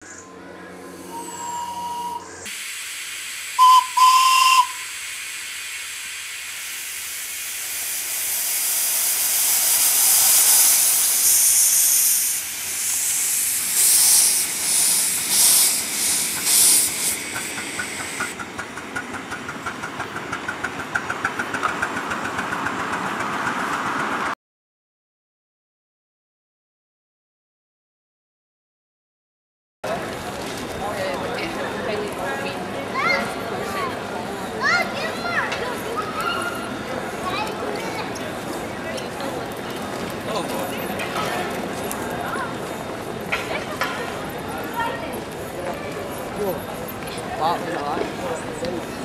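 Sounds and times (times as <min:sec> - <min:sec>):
steam locomotive chuffing: 0:00.7 - 0:24.4, 0:29.9 - 0:49.0
steam hissing: 0:00.9 - 0:22.5
steam whistle toots: 0:01.0 - 0:02.8, 0:03.5 - 0:06.0.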